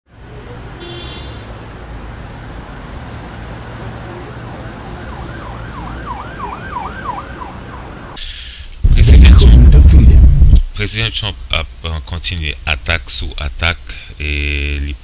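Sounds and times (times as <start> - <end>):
steady low rumble: 8.7 - 11.8.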